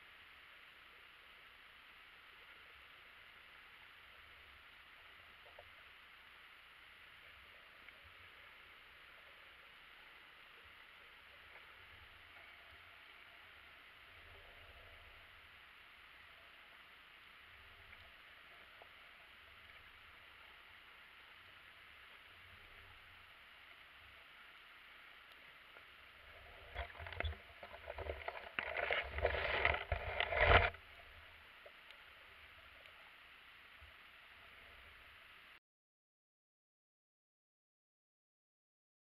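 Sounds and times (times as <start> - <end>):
faint camera hiss: 0.0 - 35.6
camera rig knocking and scraping: 26.8 - 30.8.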